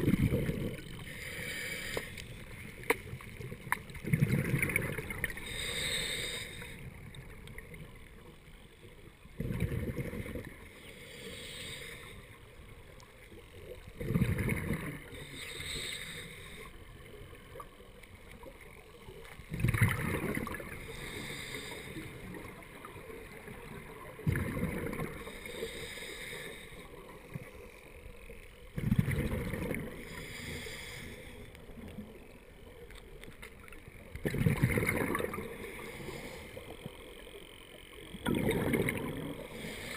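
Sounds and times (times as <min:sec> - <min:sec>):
exhaled bubbles underwater: 0:00.0 - 0:01.0, 0:03.4 - 0:05.6, 0:09.3 - 0:10.7, 0:13.7 - 0:15.3, 0:19.5 - 0:21.2, 0:22.0 - 0:25.4, 0:28.7 - 0:30.1, 0:33.6 - 0:35.9, 0:38.0 - 0:39.9
diver breathing through regulator: 0:00.4 - 0:02.4, 0:05.3 - 0:06.9, 0:10.8 - 0:12.5, 0:15.0 - 0:16.9, 0:20.7 - 0:22.4, 0:25.0 - 0:27.0, 0:29.9 - 0:31.7, 0:35.4 - 0:36.9, 0:39.4 - 0:39.9.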